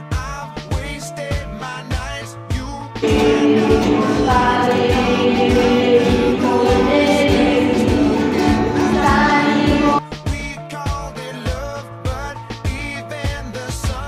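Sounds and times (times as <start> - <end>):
acoustic guitars strumming: 3.0 - 10.0
voices singing along: 3.0 - 10.0.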